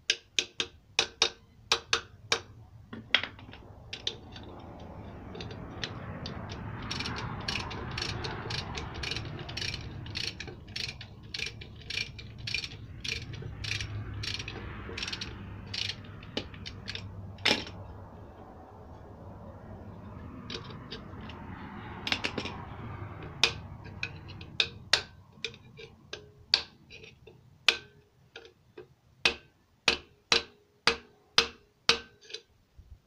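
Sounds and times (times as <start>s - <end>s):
ratchet wrench clicking: 3.5s - 17.8s, 20.0s - 27.1s.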